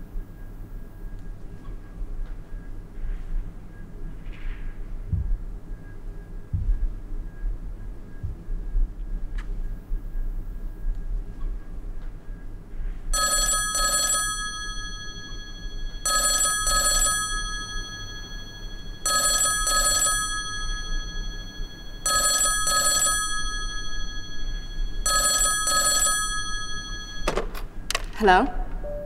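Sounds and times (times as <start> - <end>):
telephone double ring: 13.2 - 27.7
low hum: 17.2 - 27.9, 28.5 - 29.0.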